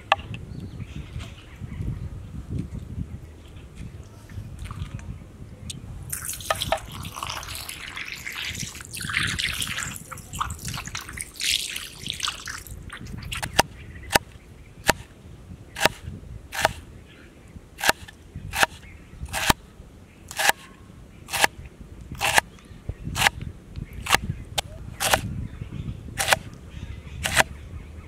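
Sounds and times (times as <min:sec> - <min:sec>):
water splashing: 0:06.1 - 0:13.6
knife chopping on cutting board: 0:15.8 - 0:16.0, 0:16.6 - 0:16.8, 0:17.8 - 0:18.0.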